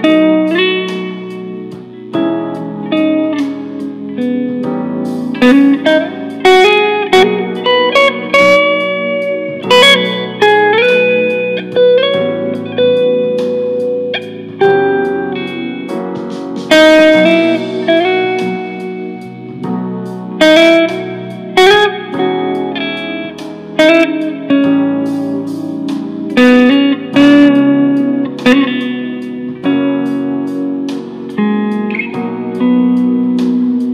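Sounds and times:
solo guitar playing: 0.0 - 33.9.

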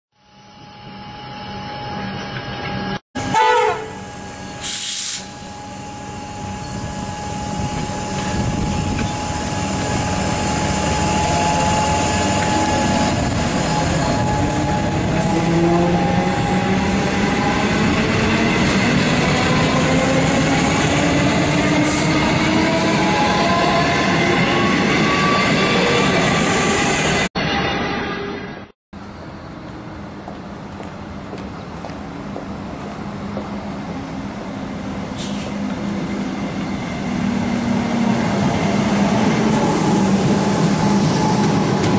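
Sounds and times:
train wheel and rail noise: 0.7 - 41.9
train horn blast: 3.2 - 5.4.

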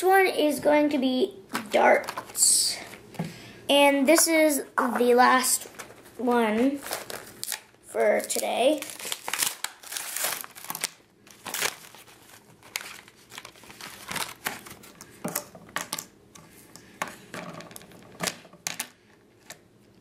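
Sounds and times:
packaging crinkling and tearing: 5.6 - 15.1.

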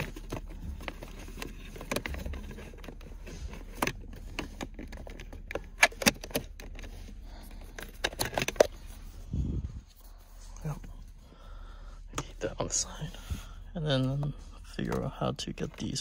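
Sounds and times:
plastic parts clicking and rattling: 0.0 - 8.8.

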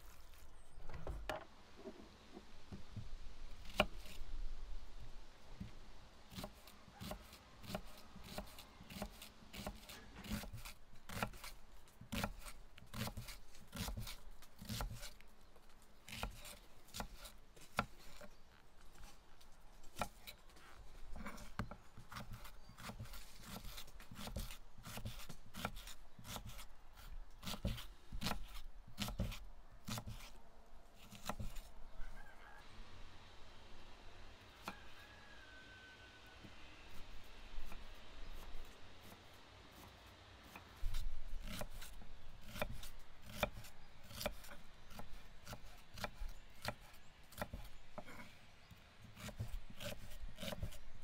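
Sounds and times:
knife cutting onions: 6.3 - 15.2, 21.2 - 30.4, 49.2 - 50.8.

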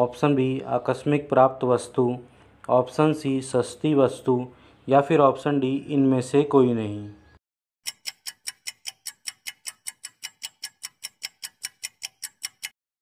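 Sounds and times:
clock-like timer ticking: 7.8 - 12.8.

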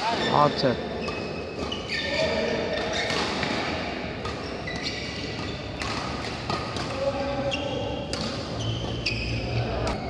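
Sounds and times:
shoes squeaking on court: 0.0 - 10.0
rackets smacking shuttlecock: 2.8 - 7.3, 8.0 - 9.0, 9.7 - 10.0.

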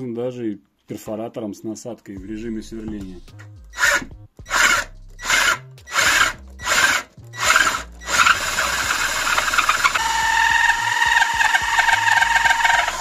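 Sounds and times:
drill hole saw cutting: 3.7 - 13.0
steady squeal: 3.7 - 13.0.

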